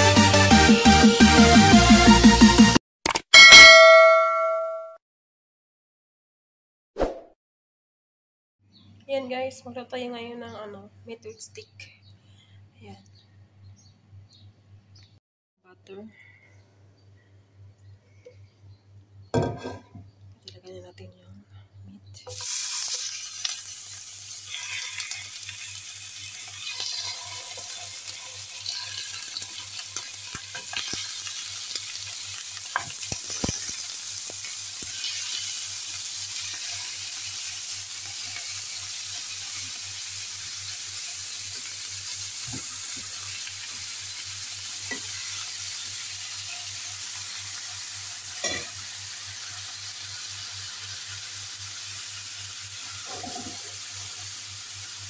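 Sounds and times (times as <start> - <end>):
meat sizzling in pan: 22.3 - 55.0.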